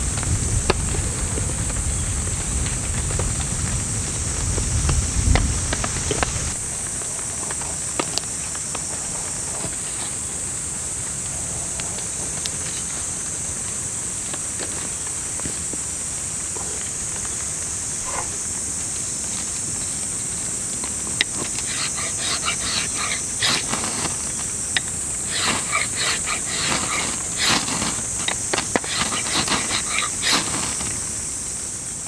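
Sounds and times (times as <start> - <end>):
steady high hiss: 0.0 - 32.0
fire-starter rod scraping: 20.8 - 31.2.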